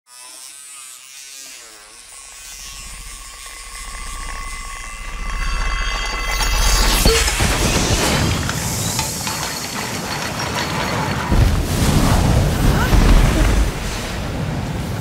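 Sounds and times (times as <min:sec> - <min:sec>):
electric toothbrush buzzing on glass: 0:00.1 - 0:06.8.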